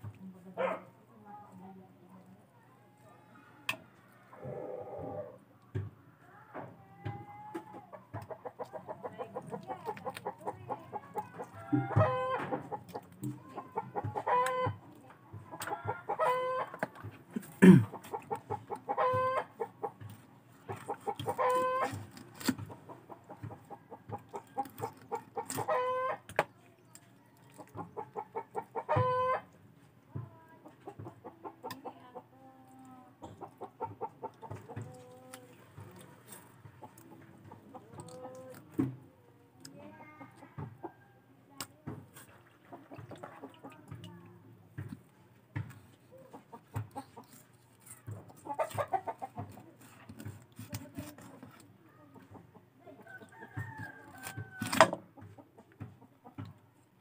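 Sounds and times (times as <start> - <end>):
chicken clucking and squawking: 3.2 - 5.4, 7.5 - 17.0, 17.6 - 26.3, 27.1 - 29.6, 30.6 - 38.8, 42.3 - 43.9, 45.8 - 56.8.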